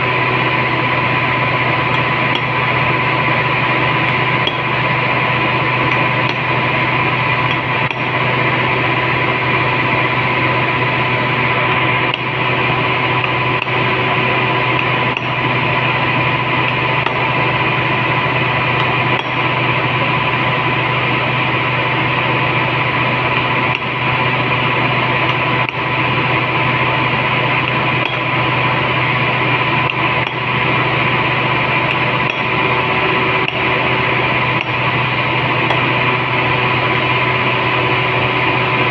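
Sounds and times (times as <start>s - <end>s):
machine hum: 0.0s - 38.9s
hammer striking hollow punch: 7.5s - 8.2s, 18.8s - 19.6s, 31.9s - 33.9s.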